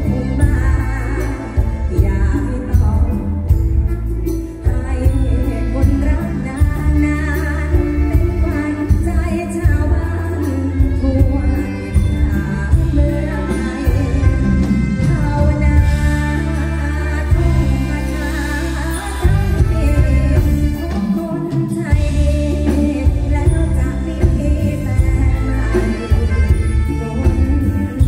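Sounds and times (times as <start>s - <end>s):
heavy bass: 0.0s - 21.1s, 21.8s - 28.0s
live band playing: 0.0s - 28.0s
woman singing: 0.0s - 28.0s
steady drum beat: 19.2s - 28.0s.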